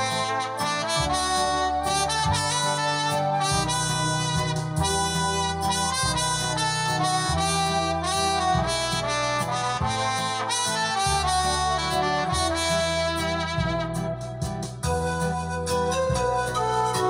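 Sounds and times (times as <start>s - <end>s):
keyboard harmonica-like melody: 0.0s - 17.0s
low bass line: 0.0s - 17.0s.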